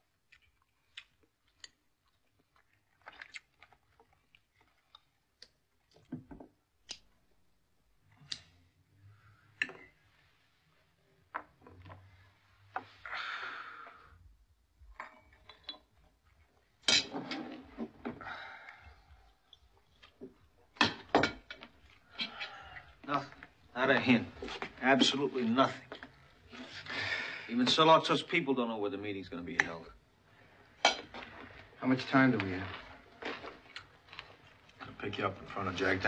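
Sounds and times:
chewing: 0.0s - 6.0s, 32.6s - 34.9s.

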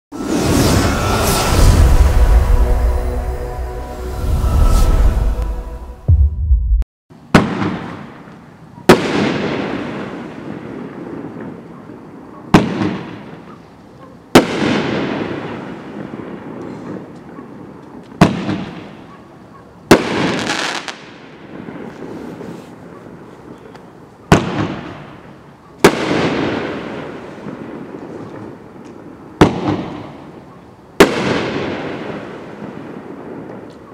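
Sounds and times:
music sting: 0.2s - 6.8s
firework bangs: 7.3s - 8.3s, 8.9s - 11.7s, 12.5s - 13.5s, 14.3s - 17.1s, 18.1s - 19.0s, 19.9s - 22.8s, 24.3s - 28.8s, 29.4s - 30.4s, 31.0s - 33.7s.

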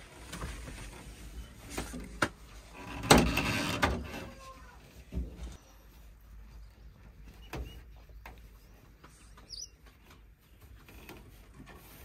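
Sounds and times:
bird chirp: 5.6s - 10.1s.

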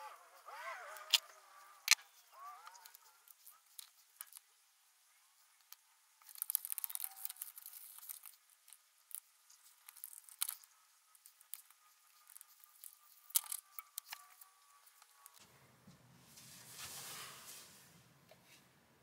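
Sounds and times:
small clicks: 0.9s - 4.5s, 5.6s - 15.4s
toothbrush scrubbing a spring: 6.2s - 15.4s.

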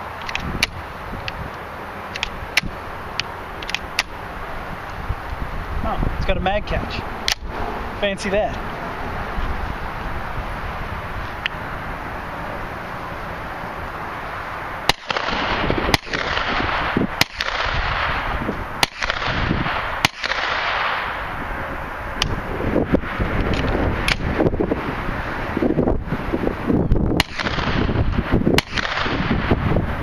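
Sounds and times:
carbine gunshots: 14.8s - 21.2s, 27.2s - 28.0s, 28.6s - 29.4s.

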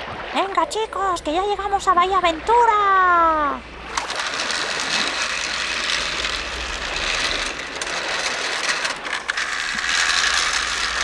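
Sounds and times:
toy train clicks: 3.9s - 11.0s
toy train whirring rattle: 3.9s - 11.0s.

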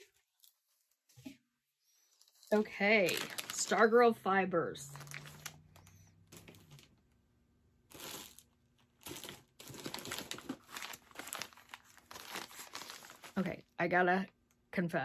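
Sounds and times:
gift wrap rustling and crinkling: 2.0s - 4.0s, 4.8s - 7.0s, 7.9s - 13.6s.

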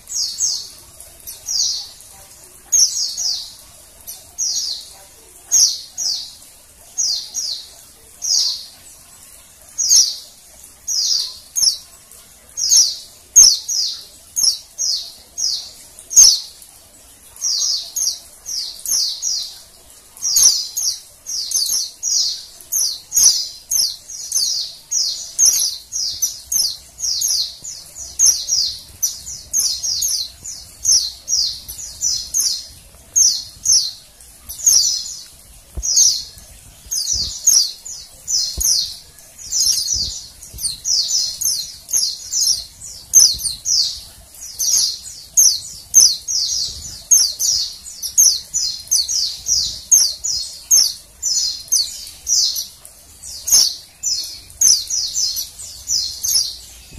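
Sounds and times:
bird high chirps: 20.2s - 56.9s.

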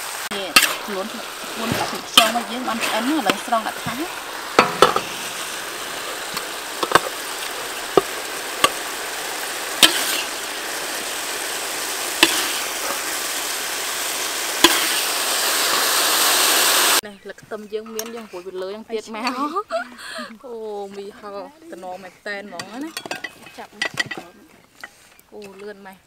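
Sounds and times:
wok sizzling: 0.0s - 26.0s
metal spatula scraping a wok: 0.4s - 9.0s, 9.7s - 13.4s, 14.0s - 15.7s.

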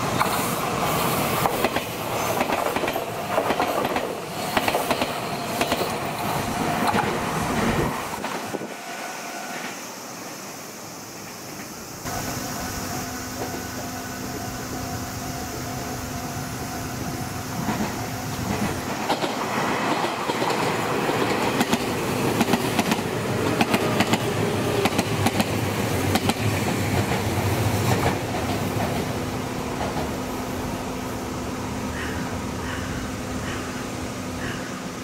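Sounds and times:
train wheels clattering over joints: 1.3s - 8.7s, 17.6s - 30.2s.

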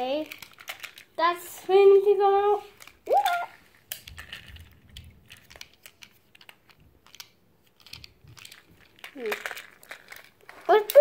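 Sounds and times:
plastic toy train clicks and taps: 5.3s - 9.6s.

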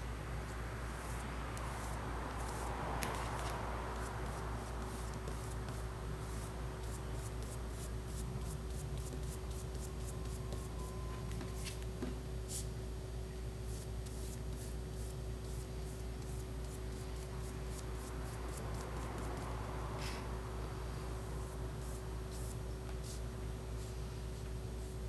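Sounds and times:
low electrical hum: 0.0s - 25.0s
paintbrush scratchy brushing: 0.9s - 10.9s, 13.6s - 20.2s, 20.9s - 24.2s.

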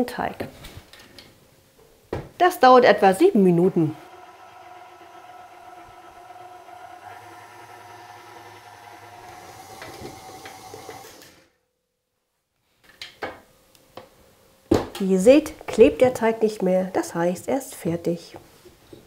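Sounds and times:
stand mixer kneading dough: 3.3s - 11.4s.

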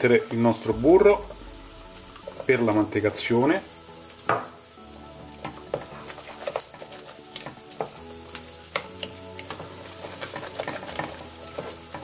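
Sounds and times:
spatula scraping and tapping pot: 8.7s - 12.0s.

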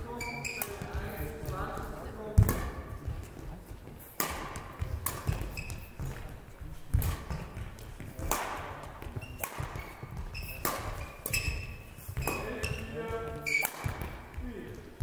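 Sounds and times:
shoe squeaks: 0.0s - 1.1s, 5.2s - 6.2s, 9.0s - 14.0s
badminton racket hits: 0.0s - 15.0s.

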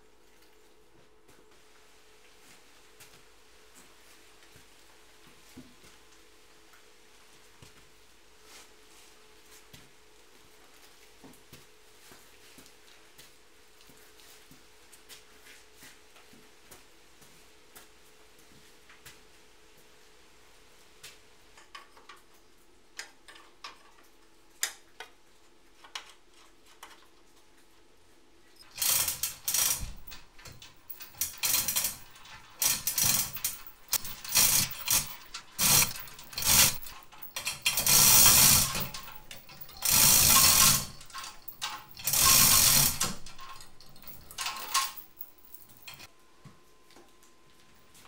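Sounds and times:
hoist chain rattling: 28.6s - 46.1s.

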